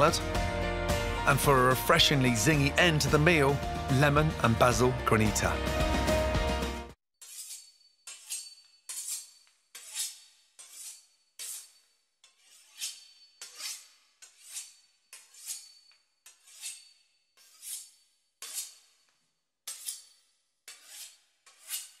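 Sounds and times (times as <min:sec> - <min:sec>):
knife sawing through pastry crust: 0:07.2 - 0:22.0.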